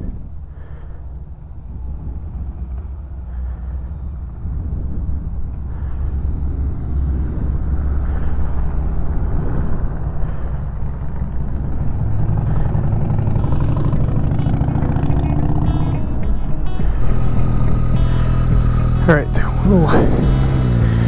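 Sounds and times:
steady low rumble: 0:00.0 - 0:21.0
vehicle engine accelerating: 0:01.5 - 0:21.0.

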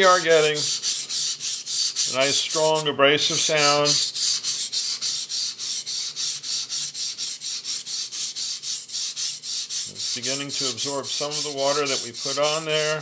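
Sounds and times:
knife scraping on whetstone: 0:03.8 - 0:13.0.

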